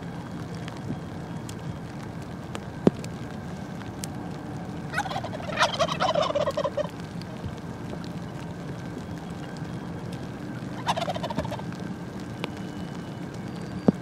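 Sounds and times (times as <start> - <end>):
turkey gobbling: 4.9 - 6.9, 10.8 - 11.6.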